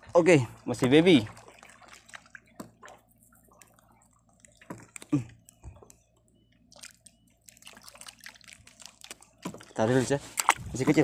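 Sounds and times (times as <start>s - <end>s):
water dripping and splashing: 0.2s - 5.3s, 6.7s - 9.8s.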